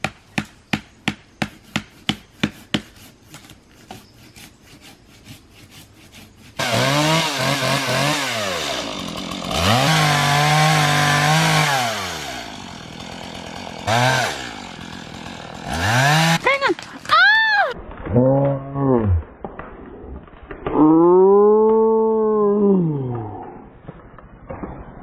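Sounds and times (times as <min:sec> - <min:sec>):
chainsaw revving and cutting: 0:06.1 - 0:17.2.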